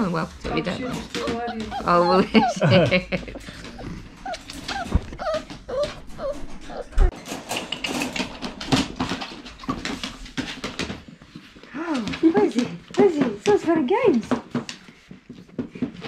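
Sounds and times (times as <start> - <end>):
puppy whimpering: 0.4 - 7.2.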